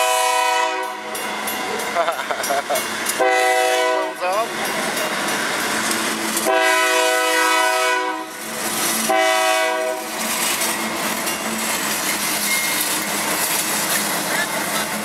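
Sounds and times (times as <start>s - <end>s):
locomotive air horn: 0.0s - 1.1s, 3.2s - 4.2s, 6.4s - 8.4s, 9.0s - 10.1s
train running on tracks: 0.0s - 15.0s.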